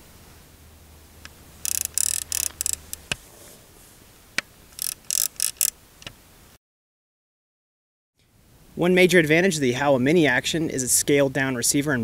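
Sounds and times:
scope turret clicking: 1.6s - 3.2s, 4.8s - 5.7s.

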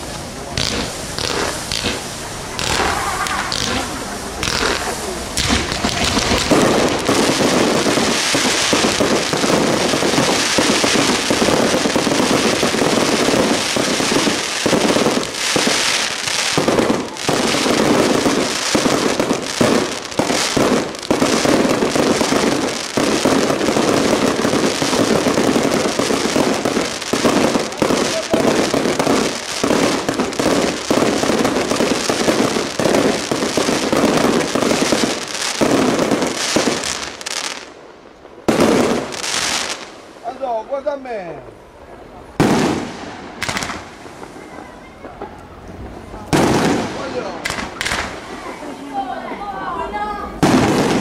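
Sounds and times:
fireworks bangs and crackle: 0.0s - 49.6s, 50.2s - 51.0s.

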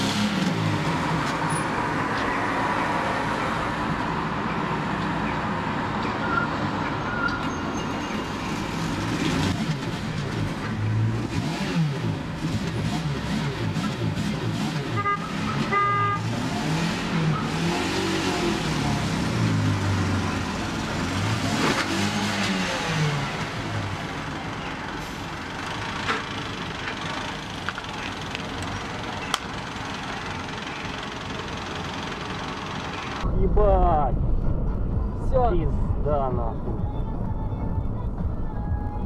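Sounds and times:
passing vehicles rumbling: 0.0s - 39.0s
car horn beeps: 14.9s - 16.3s.

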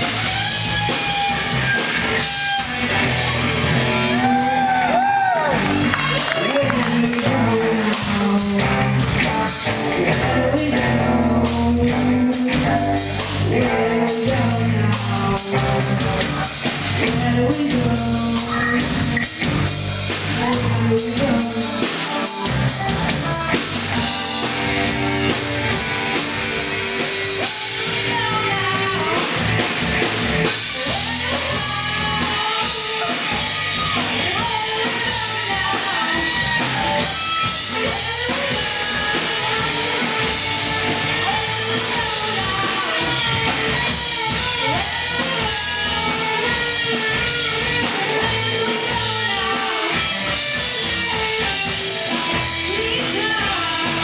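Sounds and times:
drum kit beat: 0.0s - 54.0s
electric guitars: 0.0s - 54.0s
girl singing: 9.6s - 19.0s, 20.4s - 24.3s, 27.4s - 29.4s, 30.6s - 50.4s, 51.1s - 54.0s.

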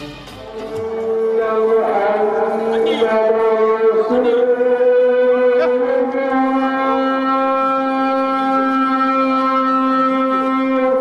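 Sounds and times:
wind instrument long note: 0.0s - 11.0s.

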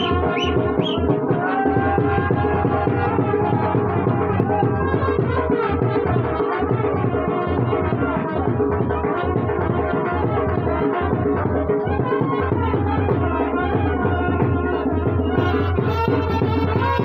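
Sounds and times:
brass band playing dance music: 0.0s - 17.0s
driving drum beat: 0.0s - 17.0s.

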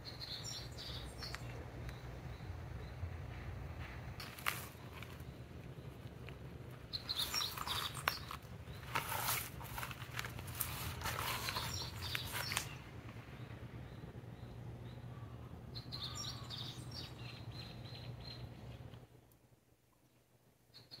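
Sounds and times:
faint bird chirps: 0.0s - 3.4s, 6.9s - 8.9s, 11.4s - 18.9s, 20.0s - 21.0s
steady low hum: 0.0s - 20.6s
rustling and scuffing: 3.8s - 5.3s, 7.0s - 12.8s.

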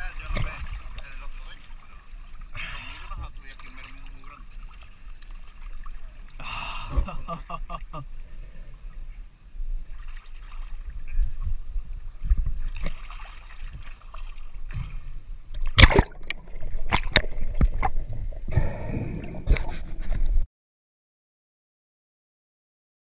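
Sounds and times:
sea water sloshing and splashing: 0.0s - 7.0s, 9.8s - 20.4s
sharp water splashes: 9.9s - 11.0s, 12.6s - 20.1s.

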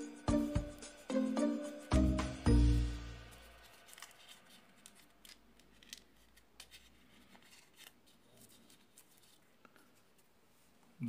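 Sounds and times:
paper crinkling: 3.2s - 10.4s.

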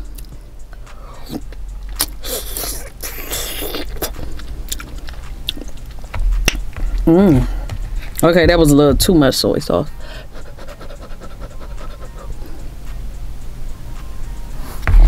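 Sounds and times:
person chewing wet mouth clicks: 1.2s - 7.1s.

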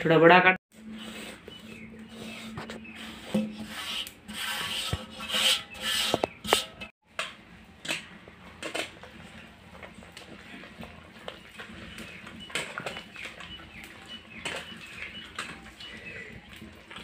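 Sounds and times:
hand mixing batter: 0.8s - 6.9s, 9.1s - 17.0s
hands scraping flour in steel pot: 0.8s - 6.9s.

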